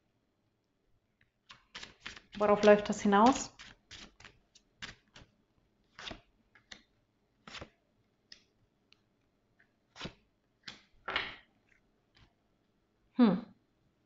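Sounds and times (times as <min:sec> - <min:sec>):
cards swishing and tapping: 0:01.4 - 0:05.3, 0:05.9 - 0:08.5, 0:10.0 - 0:11.4.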